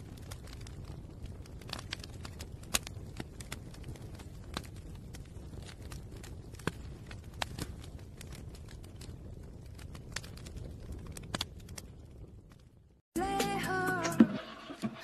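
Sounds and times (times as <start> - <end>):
paper burning and crackling: 0.0 - 15.0.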